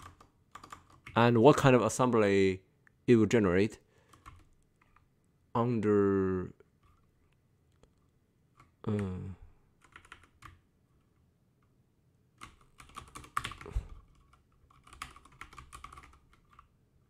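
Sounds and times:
computer keyboard typing: 0.0 - 1.3, 4.0 - 5.1, 9.8 - 10.6, 12.4 - 16.8.

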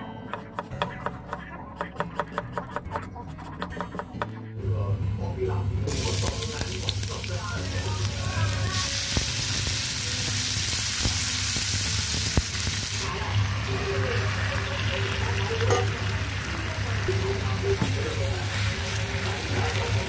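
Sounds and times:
food sizzling in hot oil: 5.9 - 20.0.

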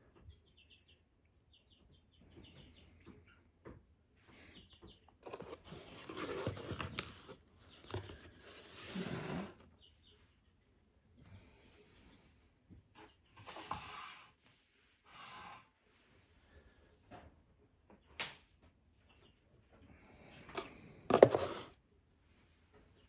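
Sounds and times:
cardboard box scraping and rustling: 5.2 - 9.6, 21.1 - 21.7.

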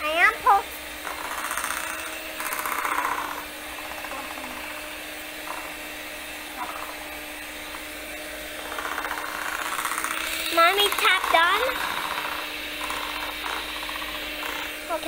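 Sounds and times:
electric hand mixer running: 0.0 - 15.0.

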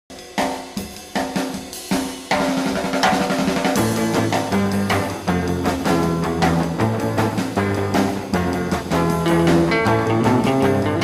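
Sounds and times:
drum kit playing: 0.1 - 11.0
sustained bass notes: 3.8 - 11.0.

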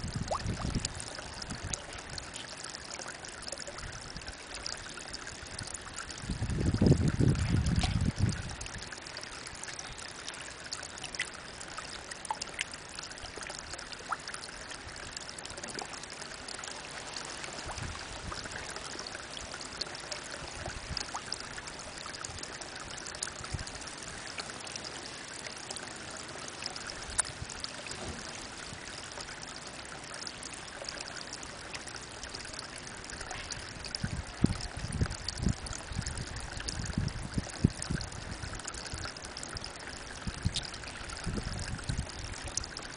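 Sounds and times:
small water drips: 0.0 - 42.9
water trickling into a pond: 0.0 - 42.9.

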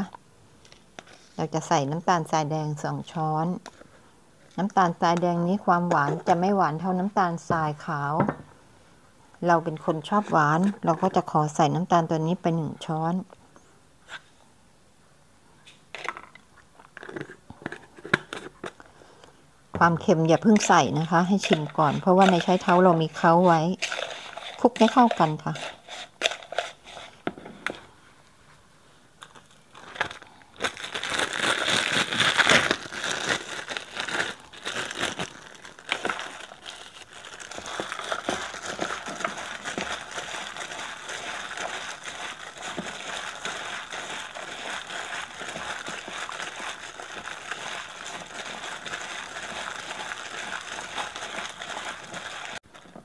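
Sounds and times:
plastic bag crinkling: 20.3 - 26.8, 29.2 - 53.0.

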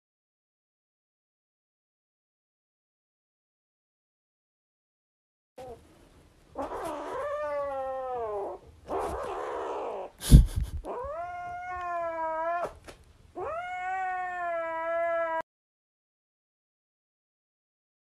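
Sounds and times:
kitten meowing: 6.6 - 10.1, 10.8 - 12.8, 13.4 - 15.4.

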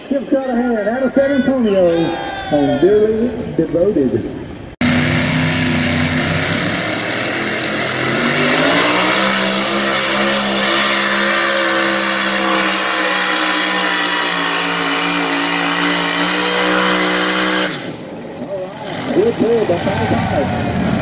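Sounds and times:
tractor engine revving: 4.7 - 21.0.

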